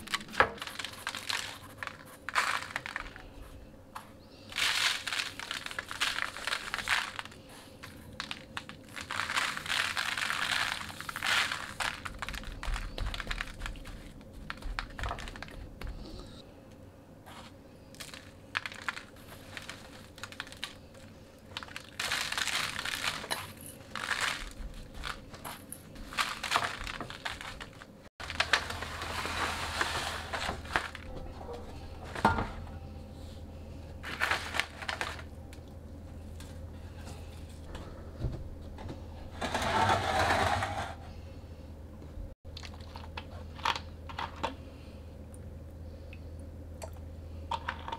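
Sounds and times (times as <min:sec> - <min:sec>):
paper crinkling: 0:00.0 - 0:03.6, 0:04.5 - 0:15.7, 0:17.3 - 0:32.3, 0:34.0 - 0:35.4.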